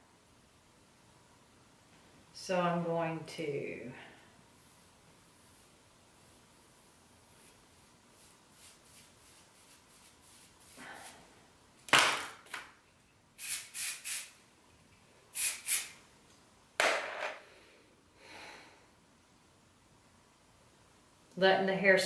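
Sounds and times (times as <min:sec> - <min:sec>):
hairspray hissing bursts: 0:13.4 - 0:14.4, 0:15.3 - 0:16.0.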